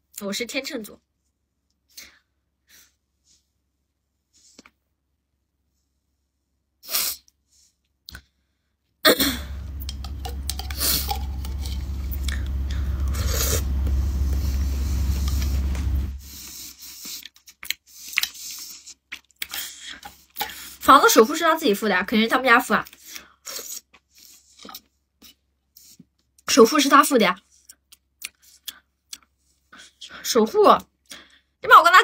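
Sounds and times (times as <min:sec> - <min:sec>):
deep rumble: 0:09.3 - 0:16.4.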